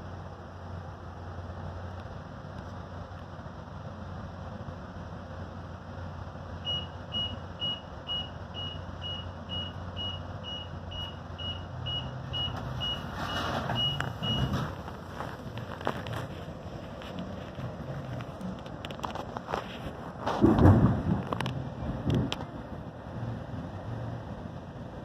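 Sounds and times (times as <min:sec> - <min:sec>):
train hum: 0:00.0 - 0:25.0
short high warning beeps: 0:06.7 - 0:14.5.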